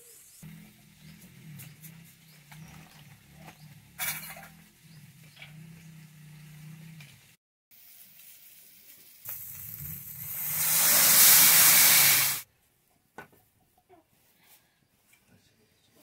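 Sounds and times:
liquid sizzling in hot pan: 7.7s - 12.4s.

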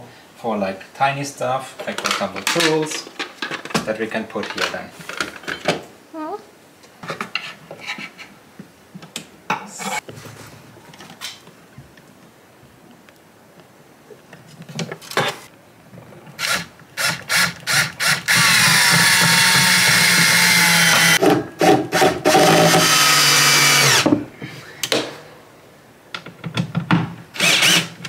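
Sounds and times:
cordless drill driving screws: 16.4s - 21.2s, 21.9s - 24.1s, 27.4s - 28.0s.

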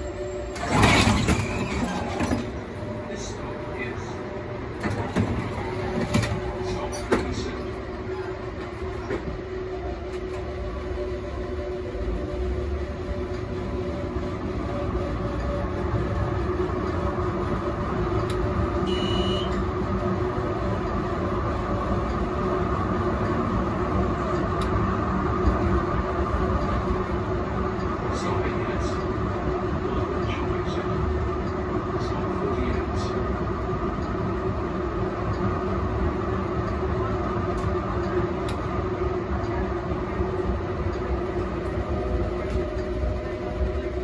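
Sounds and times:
tram rumbling on tracks: 0.0s - 44.0s
short high beep: 18.8s - 19.5s.

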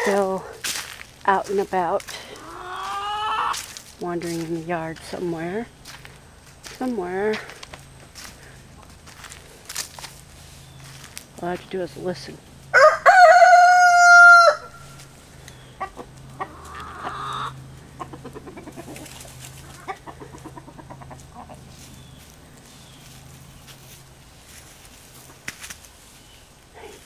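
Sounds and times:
hens clucking softly: 2.2s - 3.8s, 15.5s - 22.6s
rooster crowing: 12.7s - 15.0s.

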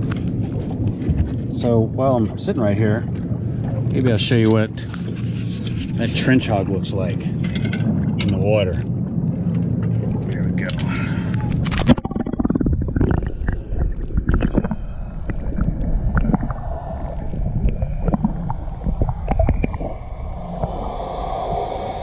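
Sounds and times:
muffled underwater rumbling and gurgling: 0.0s - 22.0s
high hiss: 20.3s - 22.0s.

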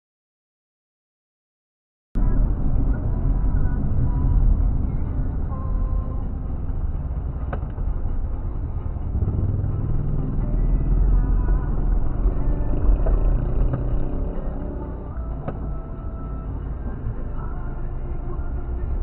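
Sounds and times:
car engine and road rumble: 2.2s - 19.0s.

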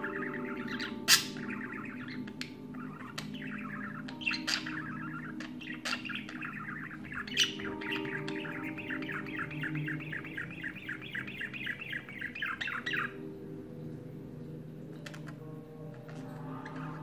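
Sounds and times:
budgerigar squawks: 0.0s - 13.2s
budgerigar warbling: 0.0s - 13.3s, 15.0s - 17.0s.

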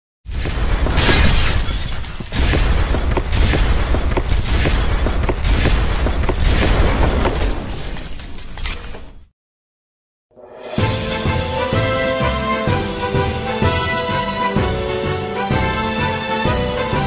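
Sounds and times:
sharp impacts: 0.3s - 8.6s
glass shattering: 0.3s - 9.3s
deep booming hits: 2.3s - 8.0s
dramatic music: 10.4s - 17.0s.

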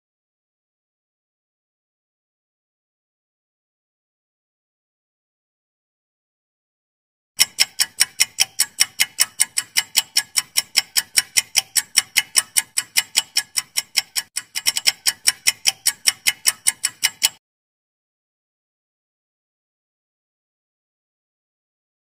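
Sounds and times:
clock ticking fast: 7.4s - 17.4s.

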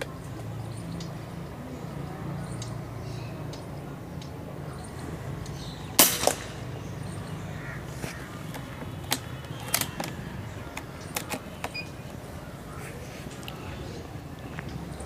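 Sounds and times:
air rifle shot: 6.0s - 6.9s.

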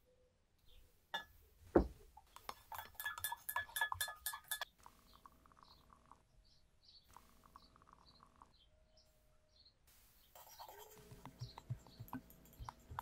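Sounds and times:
glass clinking: 2.7s - 4.7s.

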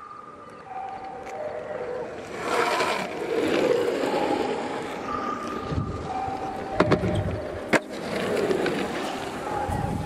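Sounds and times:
longboard wheels rolling on asphalt: 1.0s - 10.0s
wind on microphone: 5.6s - 7.6s, 9.5s - 10.0s.

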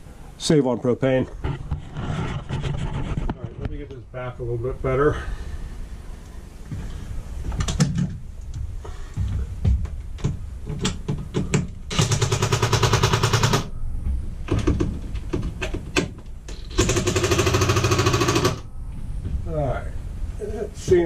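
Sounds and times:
handling knocks and clicks: 7.5s - 11.8s
impact driver hammering: 15.9s - 18.6s.

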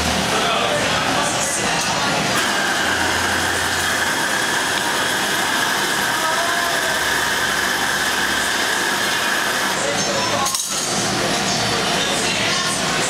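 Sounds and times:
gas torch rushing: 1.8s - 9.9s.

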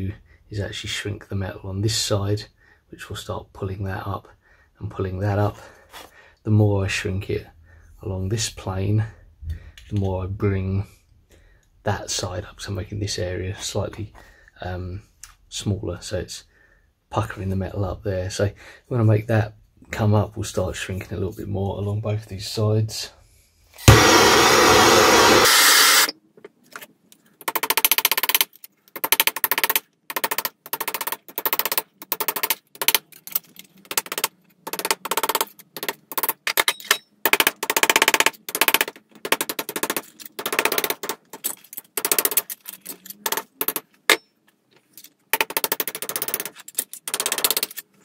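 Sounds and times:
blowtorch hissing: 23.8s - 26.1s
hammer striking sheet steel: 23.9s - 26.1s.

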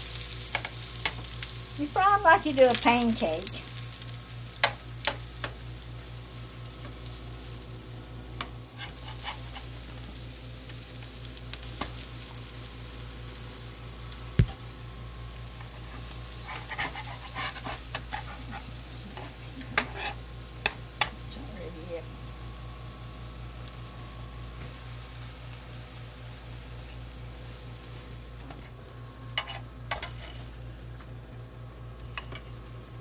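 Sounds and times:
food sizzling in a skillet: 0.0s - 33.0s
metal spatula scraping a pan: 8.8s - 9.7s, 16.0s - 20.2s, 29.4s - 30.4s.

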